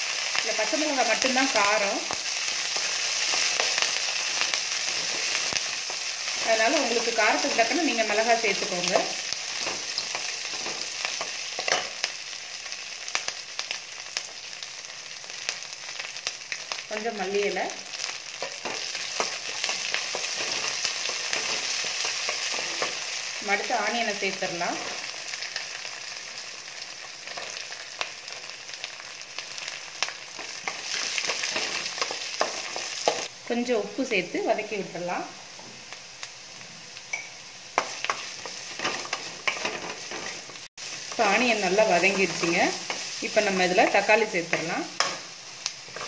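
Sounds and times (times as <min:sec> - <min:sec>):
spices sizzling in hot oil: 0:00.0 - 0:46.0.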